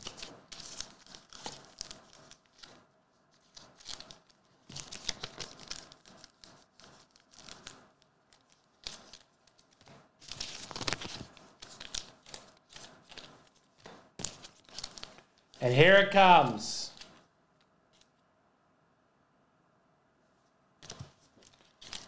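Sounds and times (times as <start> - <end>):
packaging torn and crumpled: 0.0 - 2.8, 3.4 - 13.6, 14.2 - 15.3, 20.8 - 22.0.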